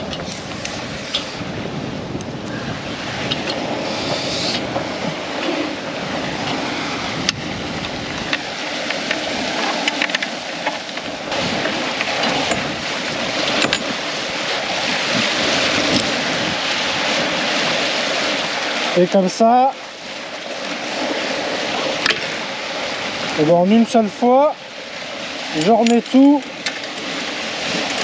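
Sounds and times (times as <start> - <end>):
wind on microphone: 0.0 - 19.3
water rushing along hull: 0.0 - 28.0.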